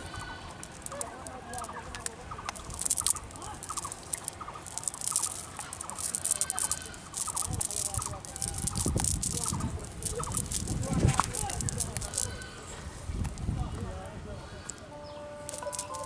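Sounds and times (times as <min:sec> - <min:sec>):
quick chattering calls: 0:00.0 - 0:12.6.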